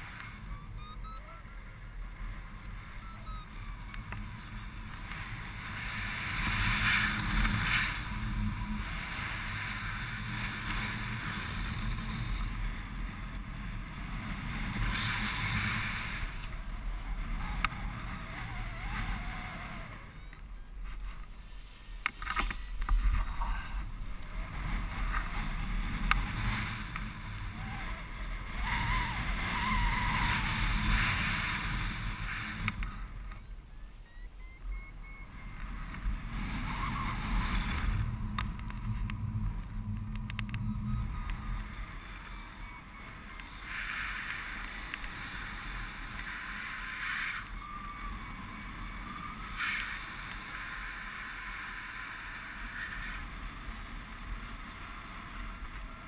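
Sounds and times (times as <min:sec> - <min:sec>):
wind rushing over microphone: 0:34.4 - 0:46.8.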